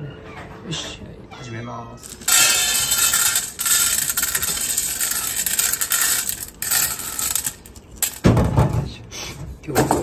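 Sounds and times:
kibble rattling on a metal plate: 0:02.0 - 0:08.3.

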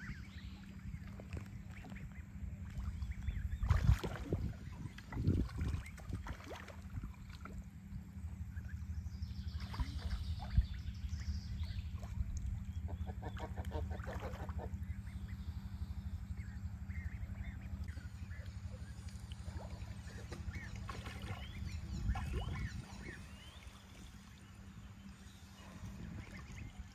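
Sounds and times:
water churning low rumble: 0:00.0 - 0:26.9
ducks quacking: 0:12.8 - 0:15.4.

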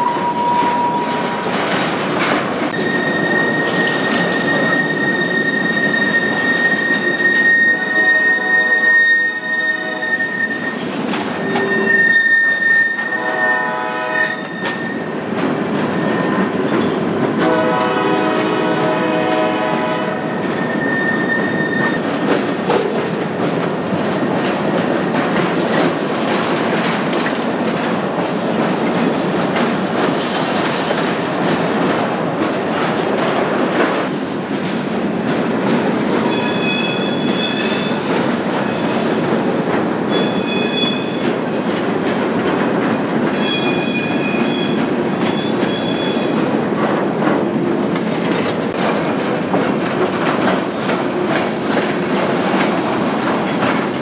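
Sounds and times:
steel wheel squeal: 0:00.0 - 0:01.4, 0:02.8 - 0:15.1, 0:15.9 - 0:17.0, 0:20.4 - 0:22.1, 0:36.2 - 0:38.0, 0:40.1 - 0:41.2, 0:43.3 - 0:46.4
train wheels clattering on rails: 0:00.0 - 0:09.4, 0:10.1 - 0:54.0
train horn blasts: 0:07.1 - 0:10.6, 0:11.5 - 0:14.9, 0:17.4 - 0:20.4.

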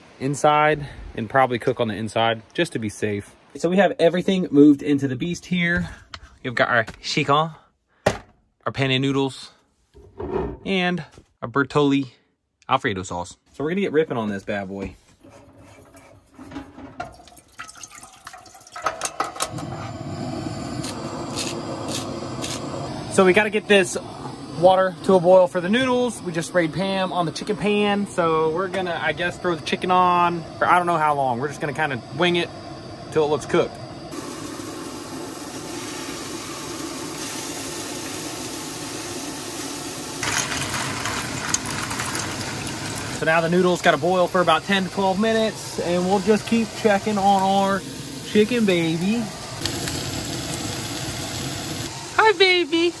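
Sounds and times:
water poured into pot: 0:15.2 - 0:25.1, 0:34.1 - 0:52.0
camp stove burner hissing: 0:15.2 - 0:53.0
cooking spray hisses: 0:15.2 - 0:53.0.

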